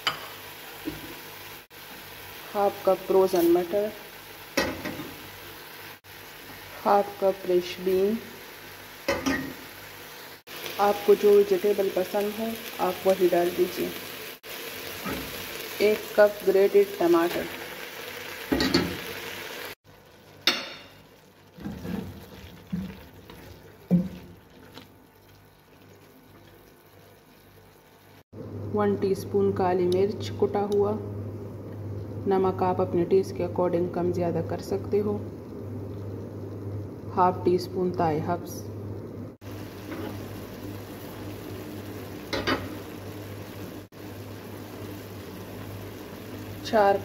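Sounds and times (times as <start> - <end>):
meat sizzling in a pot: 0.0 - 28.3, 39.3 - 47.0
wooden spoon scraping a pot: 21.6 - 25.0.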